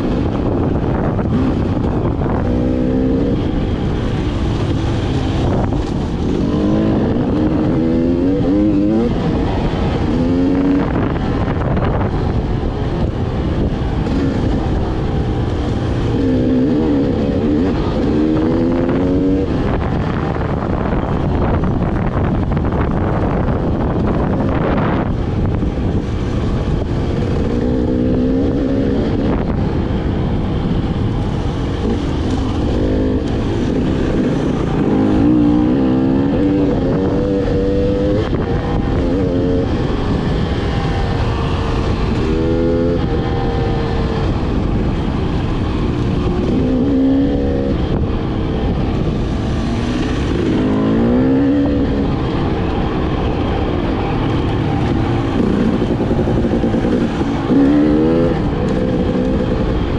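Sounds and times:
dirt bike engine revving: 0:01.1 - 0:12.0, 0:31.8 - 0:44.3, 0:45.6 - 0:59.9.

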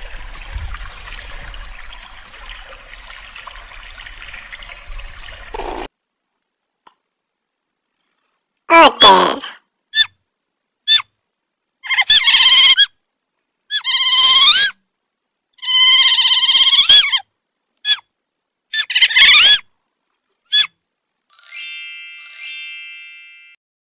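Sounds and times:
otter squealing calls: 0:05.5 - 0:05.9, 0:09.9 - 0:10.2, 0:10.9 - 0:11.1, 0:11.8 - 0:13.0, 0:13.7 - 0:14.8, 0:15.6 - 0:18.1, 0:18.7 - 0:19.7, 0:20.5 - 0:20.8
bright chime dings: 0:21.3 - 0:23.6.

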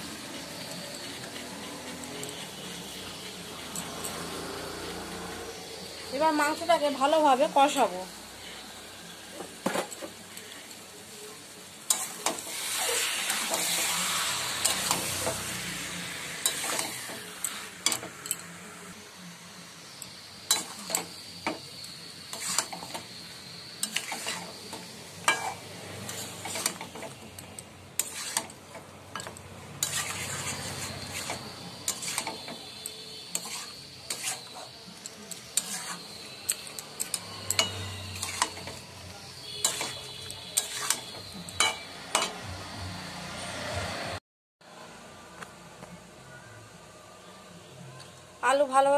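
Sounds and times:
metal spatula scraping pan: 0:00.0 - 0:04.5, 0:11.9 - 0:18.4, 0:20.5 - 0:23.2, 0:23.8 - 0:42.5
meat sizzling in oil: 0:00.0 - 0:44.0.

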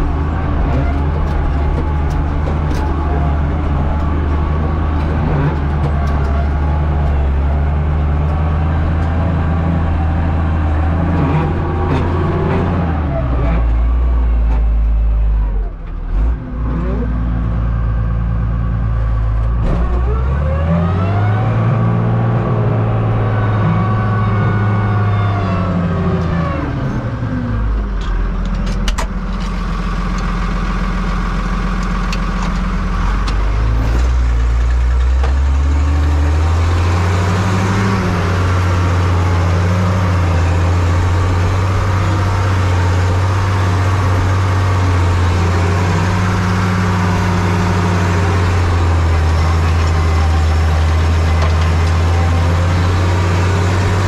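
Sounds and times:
tractor diesel engine under load: 0:00.0 - 0:54.0.

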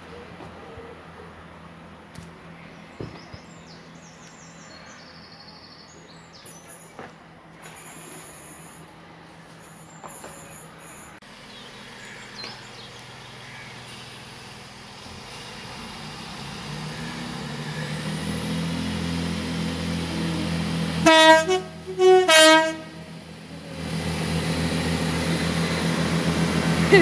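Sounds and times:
diesel train engines: 0:00.0 - 0:27.0
train running noise: 0:06.0 - 0:27.0
train horn multi-tone: 0:20.0 - 0:23.2.

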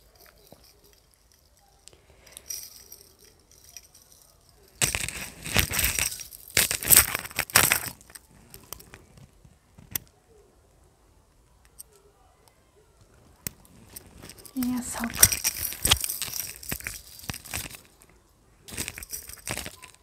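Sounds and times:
chain necklace jingling: 0:00.0 - 0:08.2, 0:13.9 - 0:18.1, 0:18.7 - 0:20.0.

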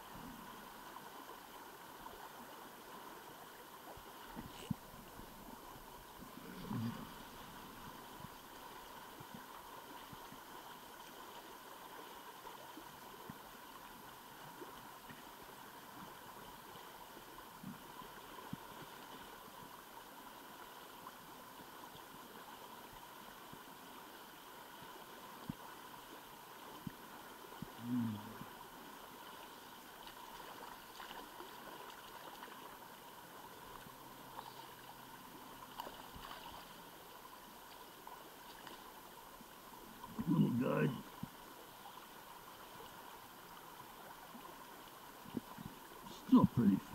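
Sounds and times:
shallow river flowing: 0:00.0 - 0:46.9.

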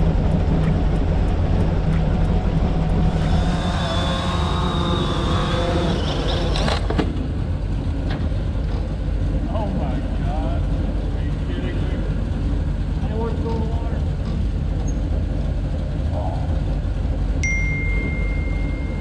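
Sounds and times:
engine drone idling: 0:00.0 - 0:19.0
quadcopter propellers whining: 0:02.2 - 0:07.2.

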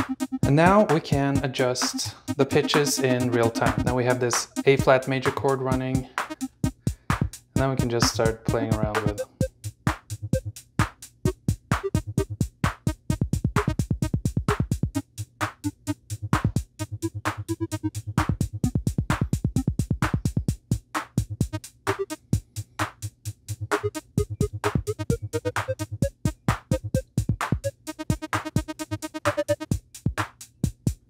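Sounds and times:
synth plucks: 0:00.0 - 0:06.8, 0:07.6 - 0:09.5, 0:11.3 - 0:12.4, 0:16.8 - 0:19.8, 0:23.7 - 0:29.7
hi-hat pattern: 0:00.0 - 0:31.0
kick drum: 0:02.2 - 0:05.0, 0:06.0 - 0:15.0, 0:16.3 - 0:22.1, 0:23.7 - 0:31.0.

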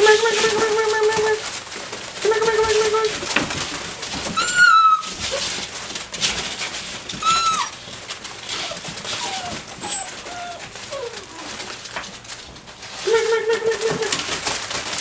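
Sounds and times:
paws scuffling in wood shavings: 0:00.0 - 0:15.0
puppies yelping: 0:04.2 - 0:05.6, 0:07.1 - 0:12.0
puppies whining: 0:04.2 - 0:05.7, 0:07.1 - 0:12.4.

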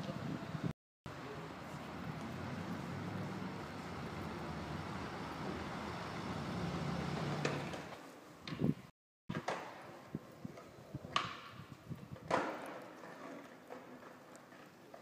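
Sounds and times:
road noise: 0:00.0 - 0:08.9
car engine passing: 0:01.4 - 0:07.9.

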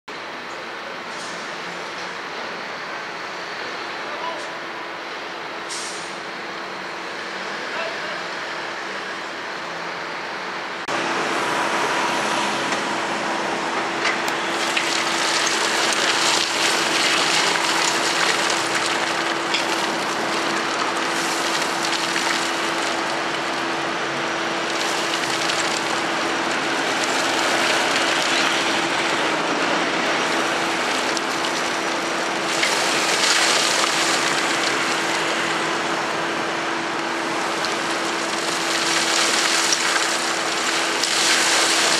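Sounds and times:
truck engine humming: 0:08.4 - 0:41.9.

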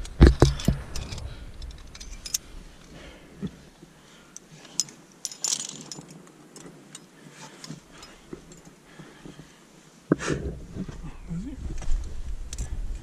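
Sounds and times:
metal climbing gear clinking: 0:00.0 - 0:09.4.

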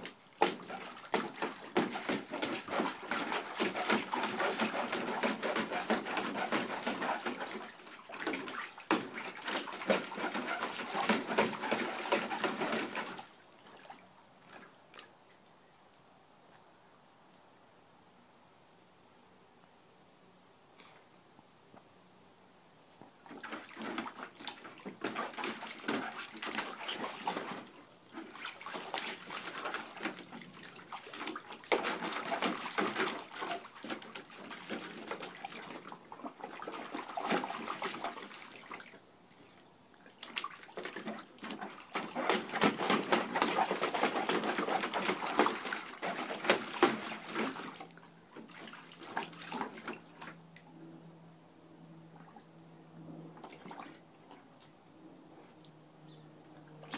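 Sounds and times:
dog splashing in water: 0:00.0 - 0:15.1, 0:23.2 - 0:39.4, 0:40.0 - 0:50.5, 0:53.3 - 0:54.8, 0:56.6 - 0:56.9.

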